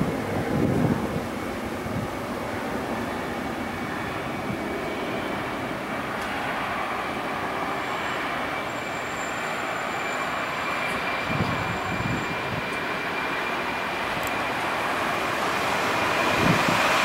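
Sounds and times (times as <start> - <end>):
jet engines roaring: 0.0 - 17.0
high whistle: 7.8 - 12.5.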